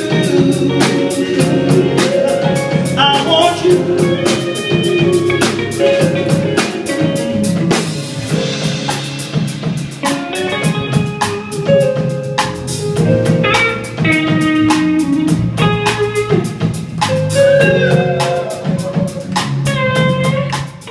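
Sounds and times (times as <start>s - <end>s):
bass guitar: 0.0s - 20.9s
drum kit: 0.0s - 20.9s
electric guitar holding notes: 0.0s - 20.9s.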